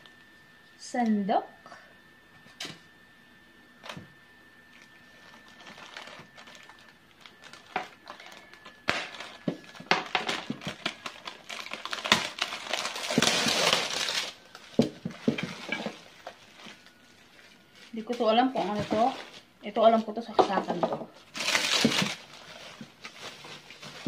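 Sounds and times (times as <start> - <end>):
bubble wrap crinkling: 4.8 - 24.0.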